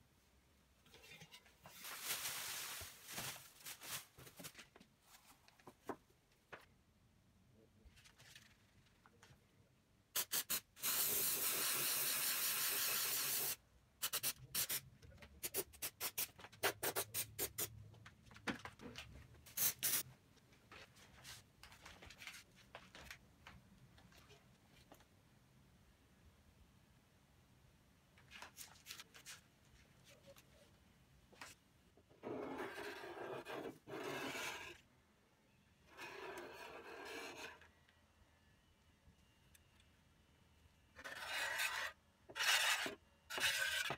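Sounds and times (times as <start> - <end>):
aerosol can spraying: 10.2 - 14.8.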